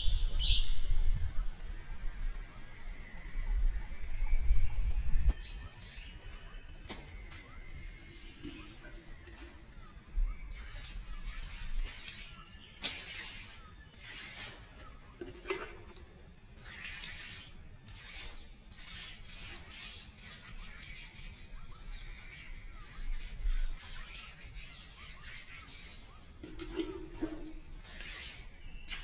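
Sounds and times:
hand tool rubbing across wood: 10.5 - 14.9, 16.6 - 29.0.

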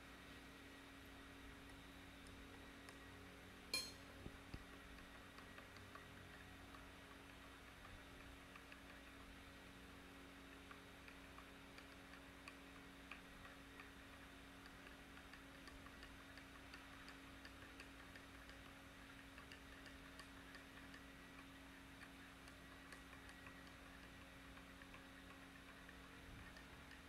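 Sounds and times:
faint steady hum: 0.0 - 27.0
spoon clinking in a mug: 3.8 - 4.0.

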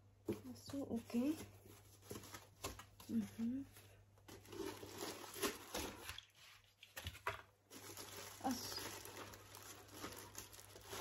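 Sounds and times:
plastic and cardboard rustling: 0.2 - 11.0.

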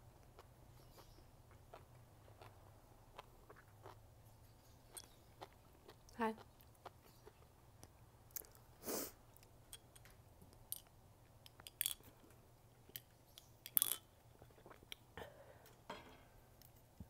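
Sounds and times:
wet chewing sounds: 0.2 - 8.7.

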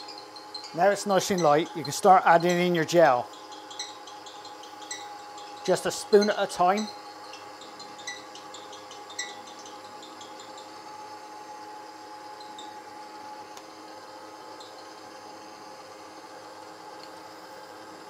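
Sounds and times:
stand mixer motor humming: 0.0 - 18.0.

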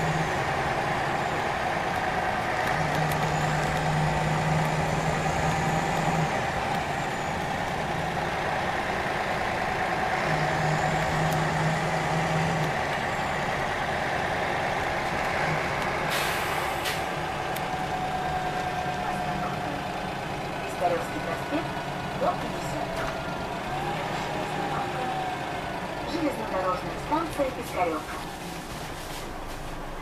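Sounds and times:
bus engine and road noise: 0.0 - 30.0
air brake hiss: 16.1 - 17.1.

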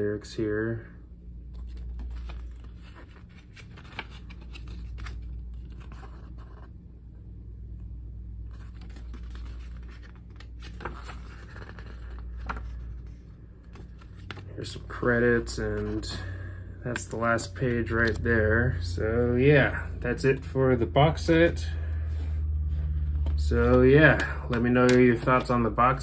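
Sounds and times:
steady low hum: 0.0 - 26.0
paper pages rustling: 1.5 - 6.7, 8.5 - 16.3, 22.1 - 25.7.

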